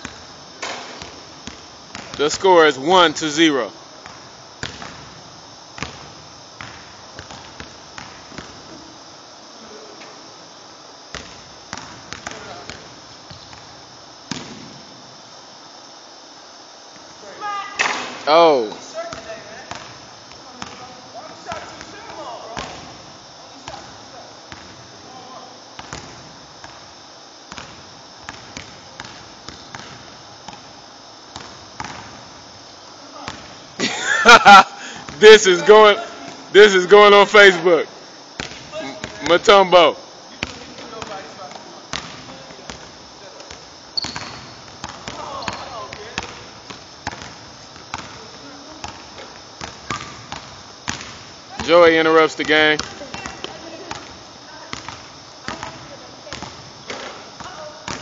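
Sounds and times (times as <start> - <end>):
steady background hiss: 0.0 - 58.0
basketball bouncing on hardwood floor: 4.0 - 5.1, 5.8 - 8.6, 43.5 - 48.2, 48.8 - 51.7.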